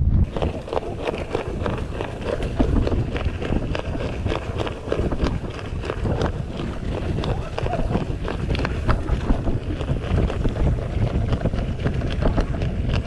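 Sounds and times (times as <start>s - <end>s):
bike tyres crunching on gravel: 0.2s - 13.0s.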